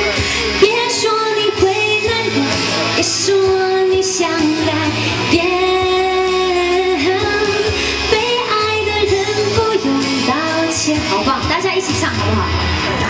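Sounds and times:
woman singing into microphone: 0:00.0 - 0:12.7
backing music: 0:00.0 - 0:13.0.

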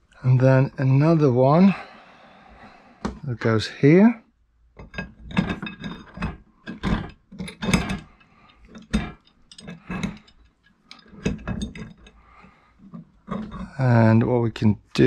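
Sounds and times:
metal bracket clinking and knocking: 0:04.8 - 0:12.2, 0:12.9 - 0:13.8.

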